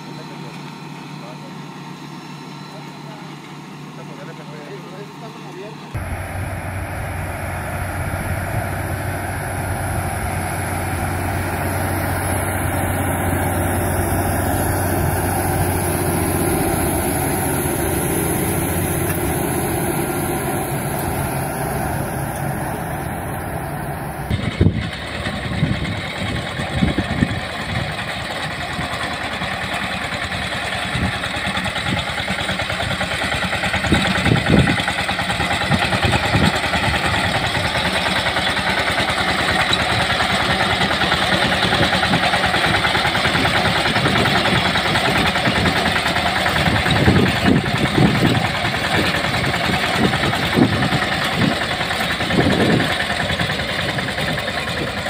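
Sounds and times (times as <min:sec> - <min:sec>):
small tractor engine running: 0:00.0 - 0:55.0
tractor diesel engine under load: 0:00.0 - 0:55.0
mower thumps cutting grass: 0:13.9 - 0:23.1.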